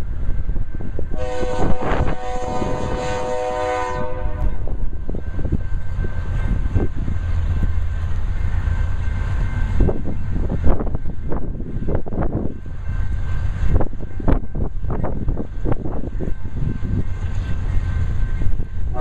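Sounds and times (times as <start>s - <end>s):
wind on microphone: 0.0s - 8.2s, 9.2s - 19.0s
freight train rumble: 0.0s - 19.0s
locomotive air horn: 1.2s - 4.8s.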